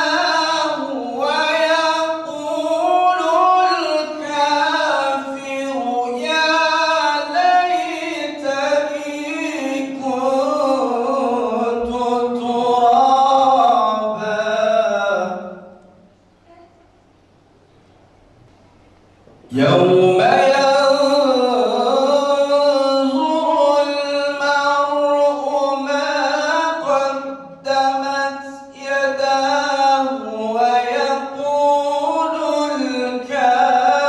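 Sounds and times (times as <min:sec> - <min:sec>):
man reciting melodically: 0:00.0 - 0:16.0, 0:19.5 - 0:34.0.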